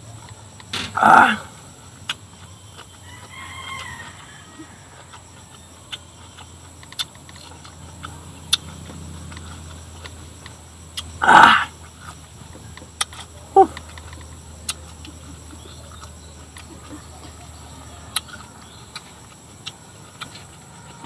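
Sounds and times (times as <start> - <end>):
rooster crowing faintly: 3.0 - 5.3.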